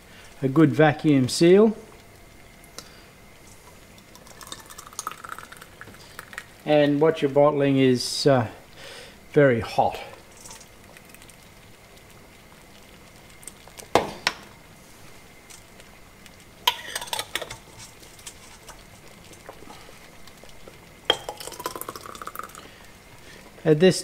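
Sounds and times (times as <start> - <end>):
ladle and jar clinking on bowl: 21.1 - 22.6.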